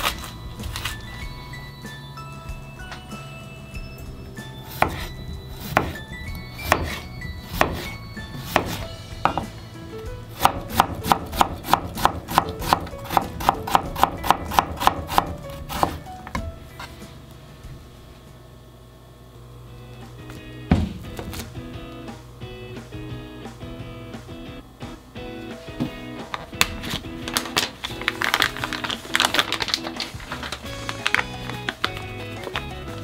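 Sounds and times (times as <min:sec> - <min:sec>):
knife chopping cucumber on board: 0:04.7 - 0:06.0, 0:07.6 - 0:09.5, 0:10.3 - 0:16.0.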